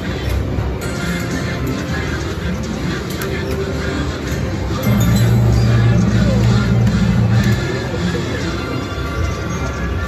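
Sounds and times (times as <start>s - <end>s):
slot machine electronic sounds: 0.0s - 10.0s
chatter: 1.4s - 10.0s
background machine tones: 4.8s - 7.6s.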